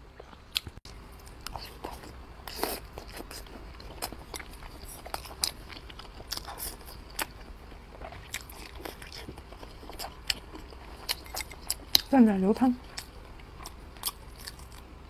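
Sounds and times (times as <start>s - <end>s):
chewing food: 0.2s - 14.9s.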